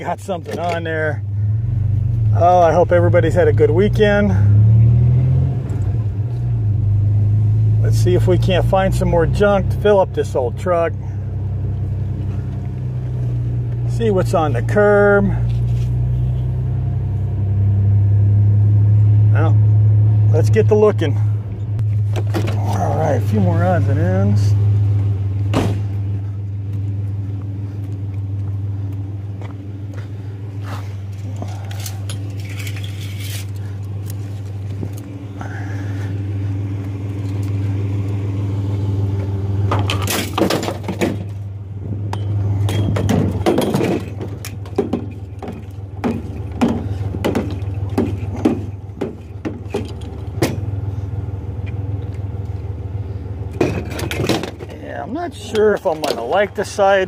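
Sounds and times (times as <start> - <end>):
scrap metal clinking and clattering: 31.1 - 34.5, 42.2 - 50.7, 53.6 - 54.8.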